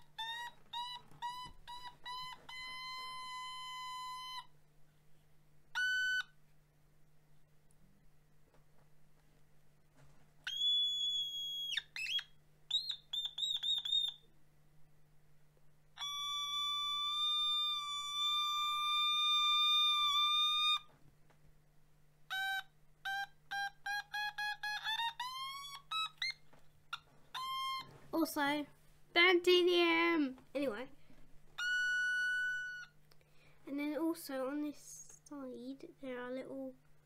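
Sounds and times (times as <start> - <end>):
electronic toy synth notes: 0.0 - 4.5, 5.7 - 6.4, 10.5 - 14.2, 16.0 - 20.9, 22.3 - 27.9, 31.6 - 33.0.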